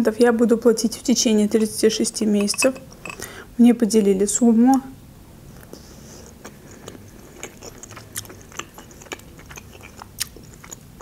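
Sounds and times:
person chewing: 5.6s - 11.0s.

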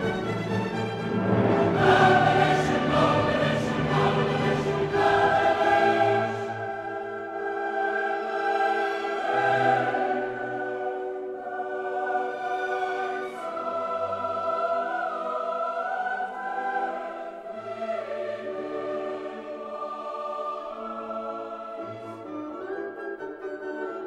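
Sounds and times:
choir singing held chords: 0.0s - 22.7s.

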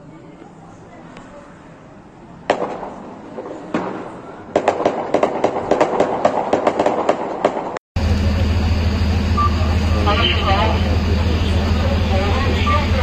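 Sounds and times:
gunshot cracks: 2.5s - 7.7s.

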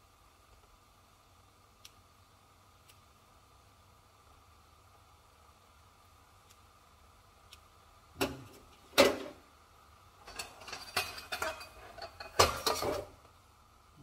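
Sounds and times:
utensils clinking and rattling: 10.2s - 13.1s
metal clanks at a wok: 10.2s - 13.2s.

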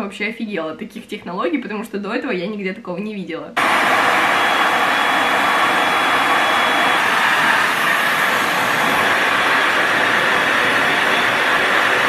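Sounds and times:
faint high whine: 3.6s - 12.0s
hair dryer air rush: 3.6s - 12.0s.

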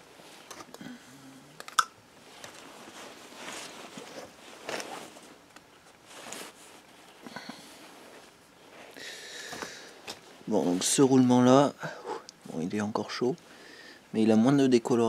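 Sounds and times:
clothing rustling: 2.1s - 11.1s.

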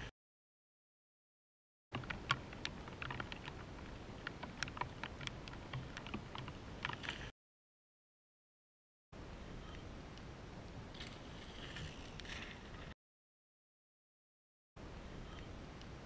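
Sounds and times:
small irregular clicks: 1.9s - 7.3s.

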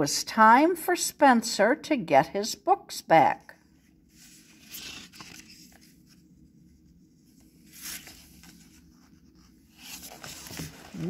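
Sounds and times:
paper page rustling: 4.2s - 6.3s, 7.3s - 11.0s.

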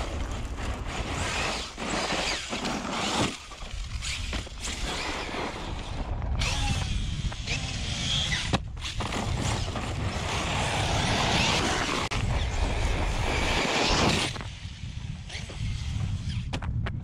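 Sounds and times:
tyres churning dirt and gravel: 0.0s - 6.6s
electric motor whining: 0.9s - 14.4s.

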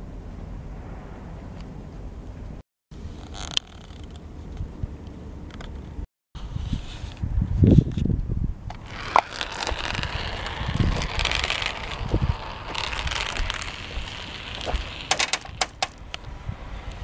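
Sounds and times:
wind rumble on microphone: 4.0s - 17.0s
marbles clicking together: 8.7s - 16.0s
marbles rolling down plastic track: 8.7s - 16.0s.

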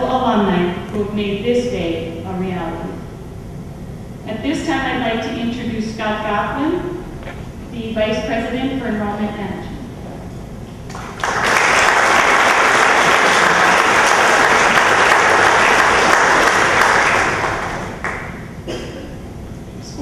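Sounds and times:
audience applauding: 10.9s - 18.5s.

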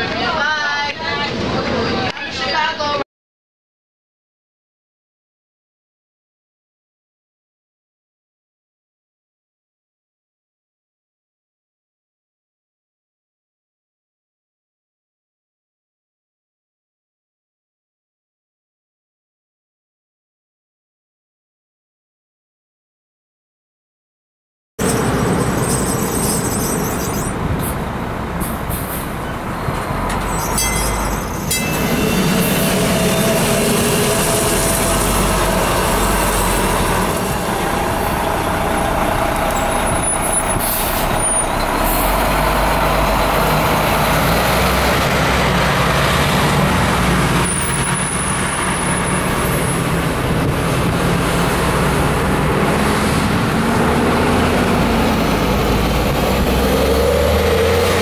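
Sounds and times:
road noise: 0.0s - 3.0s, 24.8s - 58.0s
diesel buses driving past: 24.8s - 58.0s
streetcar pulling away: 24.8s - 58.0s.

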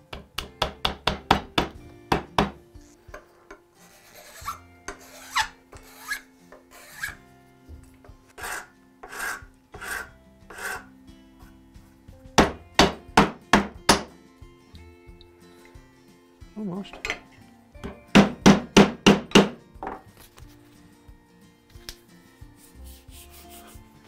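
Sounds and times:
hand file rasping on wood: 3.8s - 7.2s, 8.4s - 10.9s, 22.8s - 23.8s.

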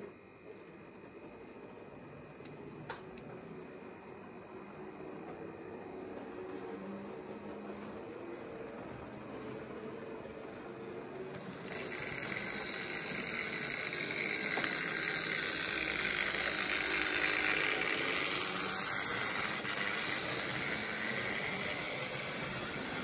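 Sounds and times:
model train motor and wheels whirring: 0.0s - 23.0s
sharp clicks of train on track: 5.0s - 23.0s.

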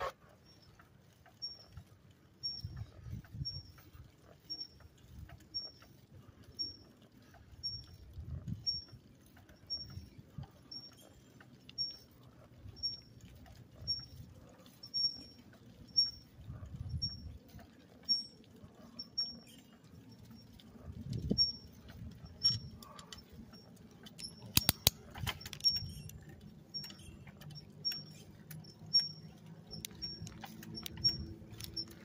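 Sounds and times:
bicycle squeaking chirp: 0.0s - 32.0s
tyres rumbling on asphalt: 0.0s - 32.0s
sharp clicks: 24.1s - 32.0s.

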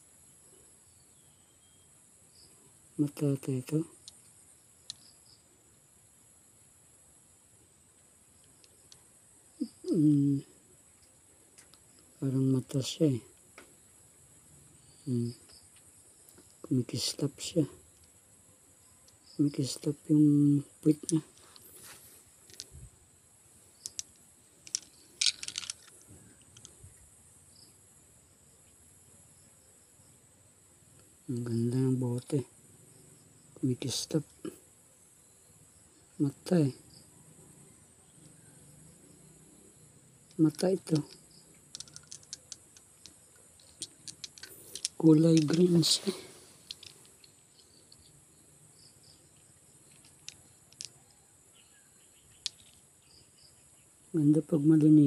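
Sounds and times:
faint insect chirps: 0.0s - 55.0s
glass bottles clicking together: 24.7s - 25.9s, 41.7s - 46.0s.

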